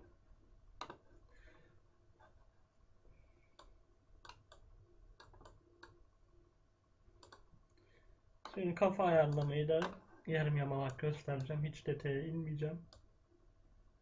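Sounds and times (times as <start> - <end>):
faint computer mouse clicks: 7.2 - 7.4.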